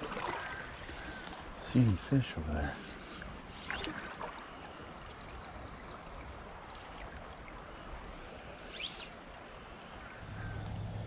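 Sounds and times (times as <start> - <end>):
creek water running over gravel: 0.0 - 7.8.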